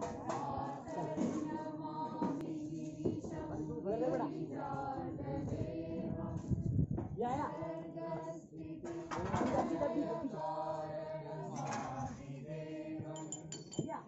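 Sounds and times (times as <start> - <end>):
people talking: 0.0 - 6.6, 7.2 - 8.3, 9.1 - 10.4
group singing a chant: 0.0 - 13.9.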